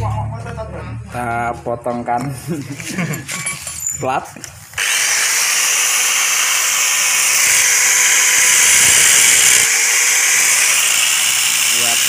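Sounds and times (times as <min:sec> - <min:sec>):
angle grinder cutting steel: 0:04.7 - 0:12.0.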